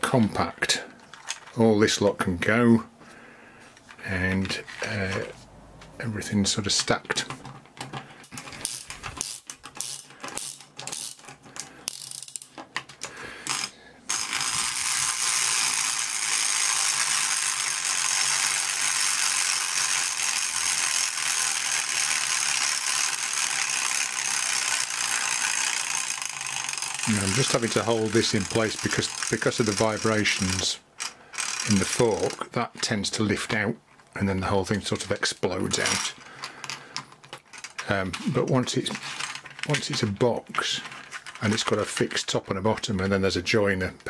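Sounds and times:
clockwork motor clicking and rattling: 8.2 - 12.5, 13.4 - 32.4, 35.7 - 40.0.

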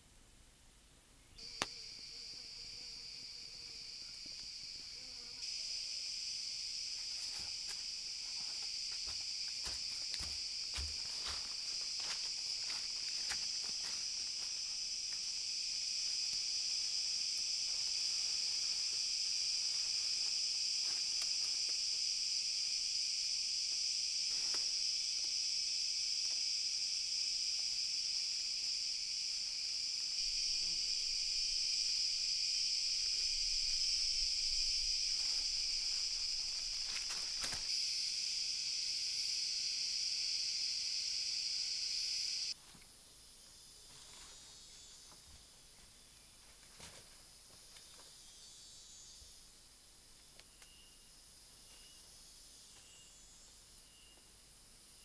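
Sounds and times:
jungle insects chorus: 1.4 - 55.0
clicks and snaps in undergrowth: 20.8 - 21.8, 35.9 - 37.7.

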